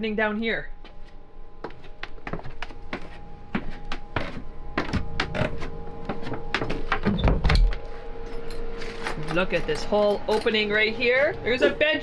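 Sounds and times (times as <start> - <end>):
generator hum: 0.0 - 12.0
footsteps knocking: 1.6 - 7.6.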